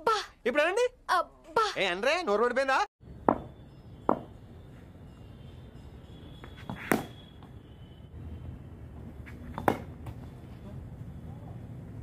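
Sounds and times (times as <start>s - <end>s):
cricket bat striking ball: 3.3s - 4.3s, 6.5s - 7.5s, 9.5s - 10.2s.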